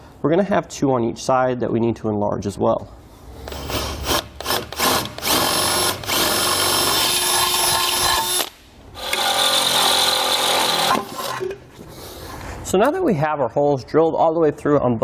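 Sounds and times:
cordless drill boring steel: 3.5s - 11.6s.

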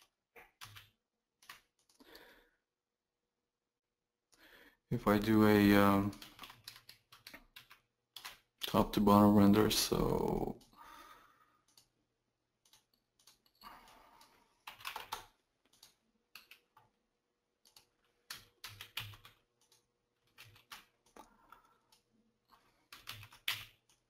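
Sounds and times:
computer keyboard and mouse clicks: 0.0s - 2.0s, 6.0s - 8.8s, 11.6s - 12.0s, 12.6s - 16.9s, 17.6s - 24.0s.

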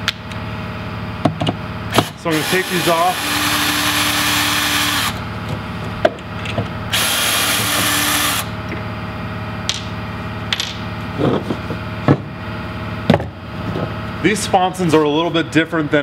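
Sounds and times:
cordless drill spinning out screw: 2.0s - 5.2s, 6.9s - 8.5s.

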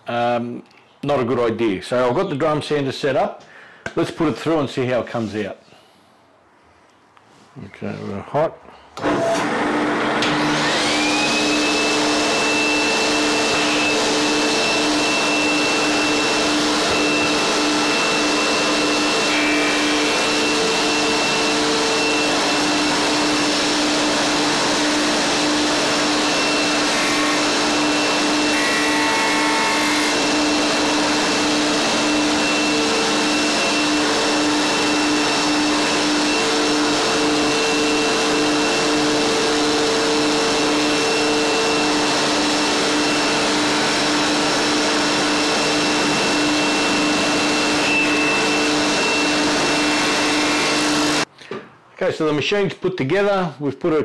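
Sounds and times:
drum sander whirring: 9.0s - 51.3s
dust extraction hum: 9.0s - 51.3s.

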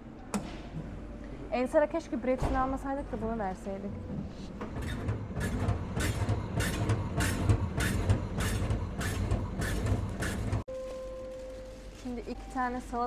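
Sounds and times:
bread slicer motor hum: 4.8s - 10.6s.

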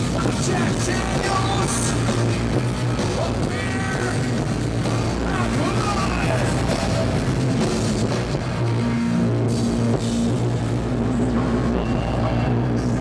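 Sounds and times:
distorted electric guitar: 0.0s - 13.0s
low bass notes: 0.0s - 13.0s
pounding drum kit: 0.0s - 13.0s.

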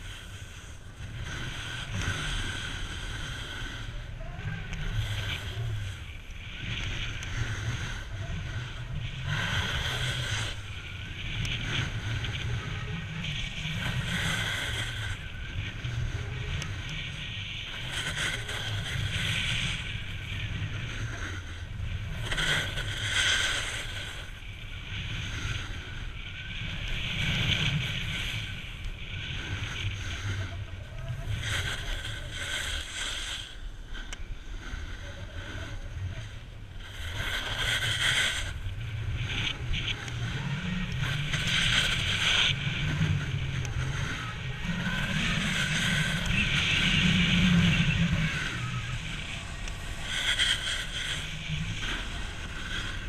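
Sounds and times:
wind rushing over microphone: 0.0s - 53.0s
snowboard scraping on snow: 36.8s - 53.0s.

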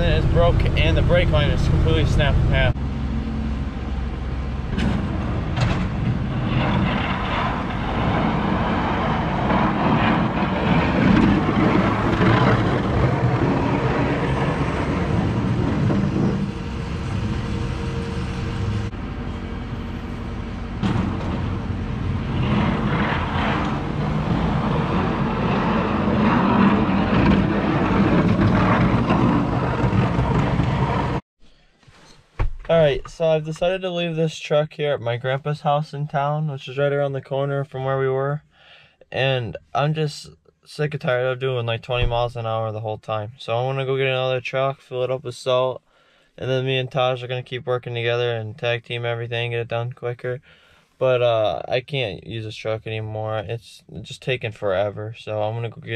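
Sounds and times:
truck engine running: 0.0s - 31.2s.

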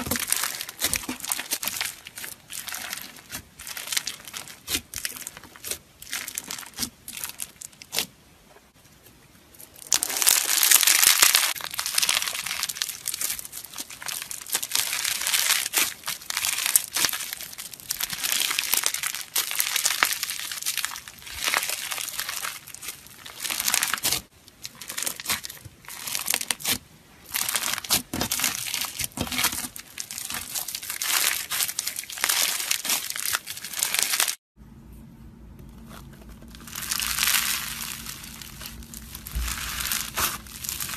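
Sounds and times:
slime crackling: 0.0s - 8.1s, 9.6s - 34.4s, 35.8s - 40.9s
low hum: 34.6s - 40.9s.

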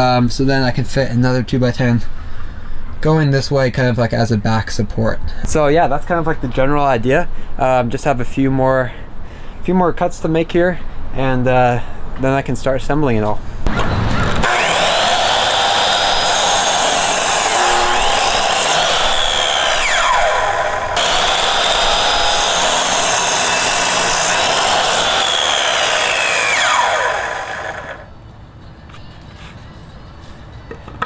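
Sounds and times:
miter saw cutting wood: 13.7s - 28.1s.

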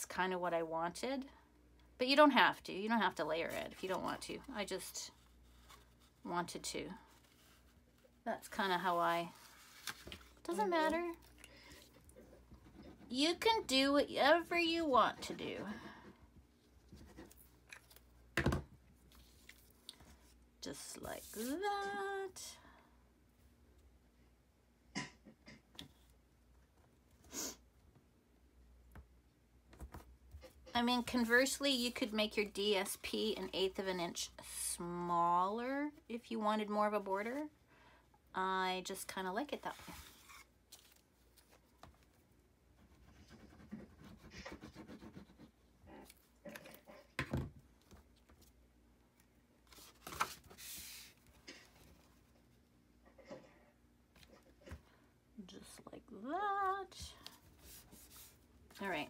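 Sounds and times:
paper rustling: 8.8s - 10.5s, 49.7s - 52.3s.

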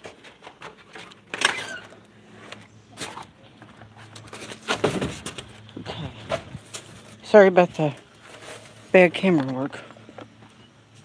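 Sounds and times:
foam board knocks and rustles: 4.4s - 5.5s.

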